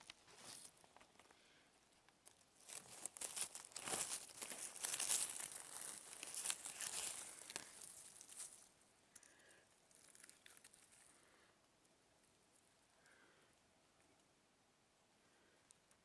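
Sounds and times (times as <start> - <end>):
dry leaves crackling and rustling: 2.6 - 8.7.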